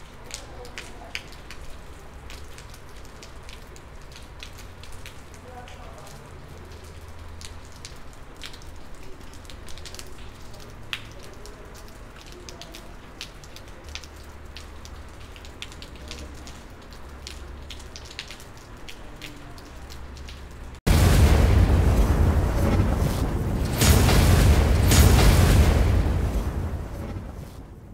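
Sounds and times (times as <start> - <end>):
raindrops ticking close by: 0.0 - 27.9
steady rain falling: 0.0 - 27.9.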